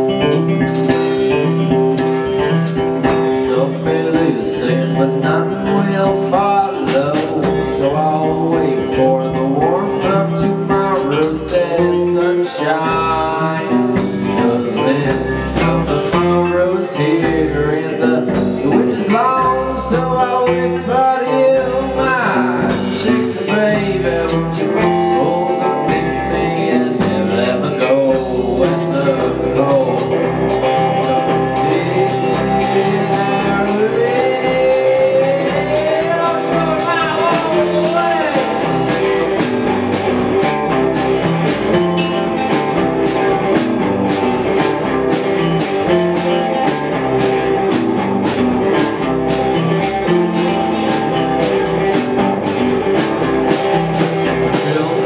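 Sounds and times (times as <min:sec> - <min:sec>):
rock band playing: 0:00.0 - 0:55.0
sliding wavering guitar lead line: 0:00.0 - 0:55.0
cymbals keeping a beat: 0:00.6 - 0:03.9, 0:28.2 - 0:55.0.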